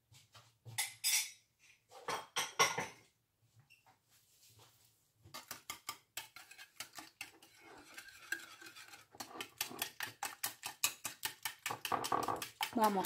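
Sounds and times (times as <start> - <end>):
whisk clicking against bowl: 5.4 - 13.0.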